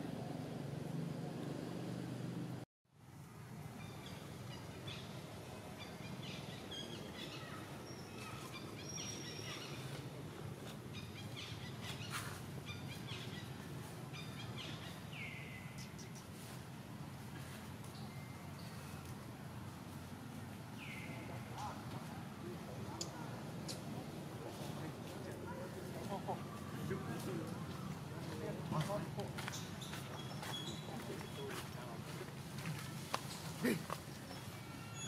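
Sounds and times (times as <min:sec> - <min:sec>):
bird chirps and calls: 0:29.4 - 0:31.7.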